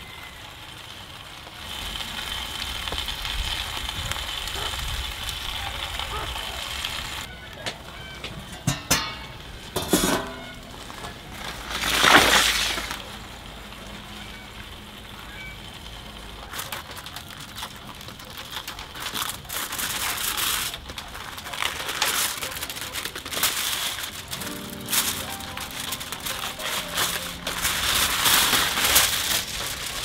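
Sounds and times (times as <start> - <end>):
aluminium foil crinkling: 0.0 - 30.0.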